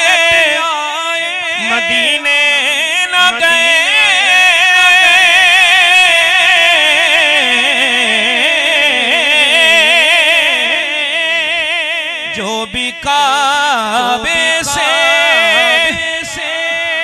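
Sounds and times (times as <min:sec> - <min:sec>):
man singing with vibrato: 0:00.0 - 0:17.0.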